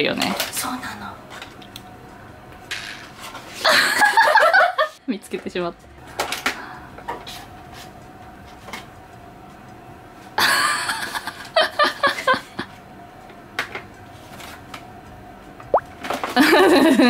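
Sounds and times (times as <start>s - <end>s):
woman laughing: 3.6s - 5.0s, 10.4s - 12.7s, 16.4s - 17.0s.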